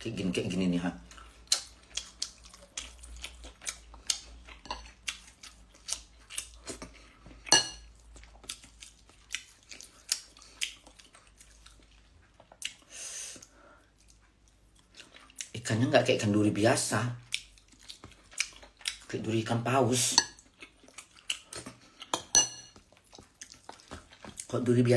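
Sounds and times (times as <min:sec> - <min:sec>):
eating clicks and smacks: 0:01.0 - 0:06.8, 0:20.5 - 0:24.6.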